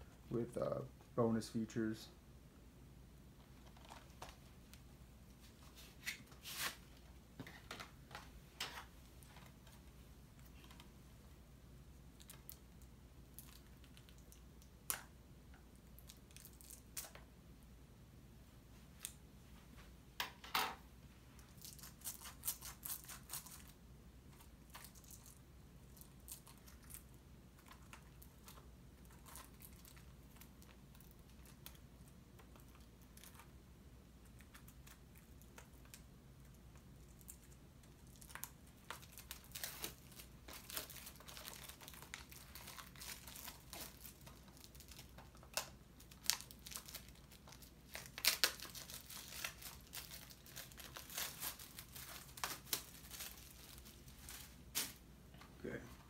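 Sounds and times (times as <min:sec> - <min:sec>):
plastic wrapping crinkling: 0:03.6 - 0:04.8, 0:37.0 - 0:55.4.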